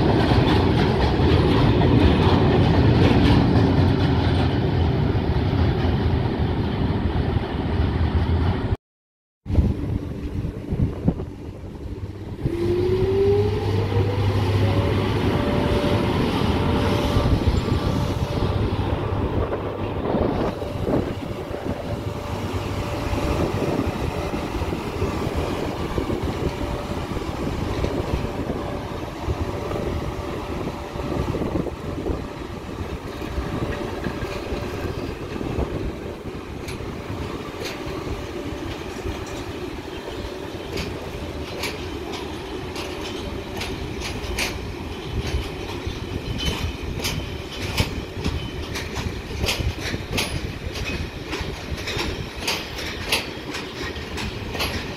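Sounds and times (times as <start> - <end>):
train wheels rumbling on rail: 0.0 - 8.8, 9.4 - 54.9
wheel clicks over rail joints: 40.7 - 54.9.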